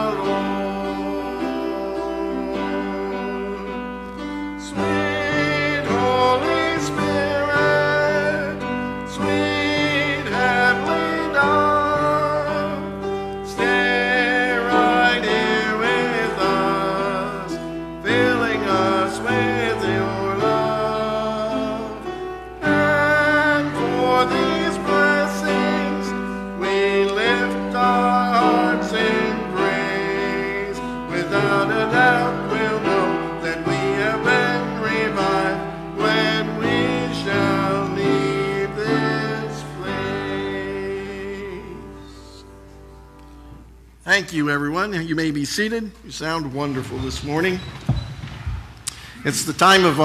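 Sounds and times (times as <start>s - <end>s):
instrumental accompaniment: 0.0s - 44.8s
congregation singing a hymn: 0.0s - 45.3s.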